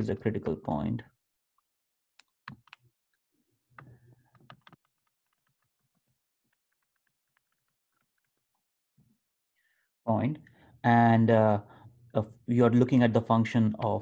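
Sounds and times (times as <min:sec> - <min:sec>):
stylus tapping on tablet screen: 0:02.2 - 0:02.9, 0:03.8 - 0:08.4.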